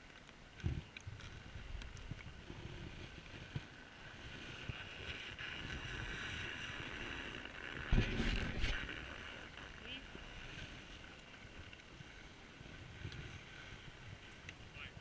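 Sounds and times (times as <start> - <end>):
skis sliding over snow: 0.0 - 15.0
wind on microphone: 0.6 - 9.0.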